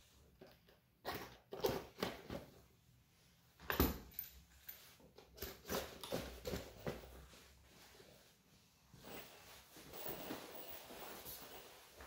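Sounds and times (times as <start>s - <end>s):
fabric rustling: 6.4s - 12.0s.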